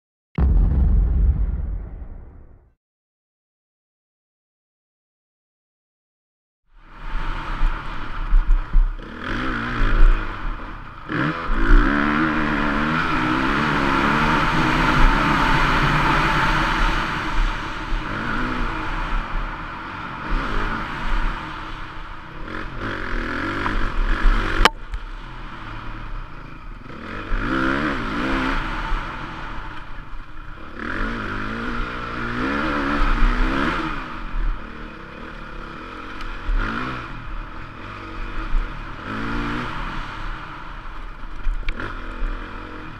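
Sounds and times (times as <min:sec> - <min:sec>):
motocross engine revving: 0:09.0 - 0:21.6, 0:22.4 - 0:26.1, 0:26.8 - 0:29.7, 0:30.6 - 0:40.8.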